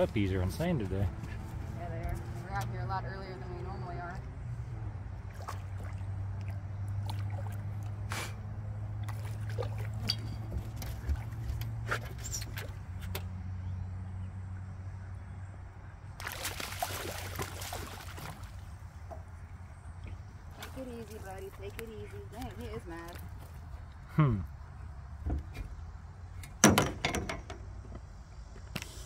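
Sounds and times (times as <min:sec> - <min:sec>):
fish splashing in water: 0:05.2 - 0:08.1, 0:08.8 - 0:12.8, 0:16.2 - 0:18.9.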